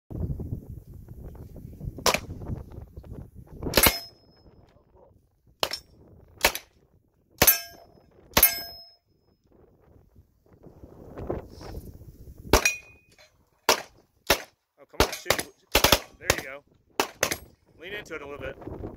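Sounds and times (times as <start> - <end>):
submachine gun single shots: 3.8 - 4.1, 6.4 - 6.7, 13.7 - 17.5.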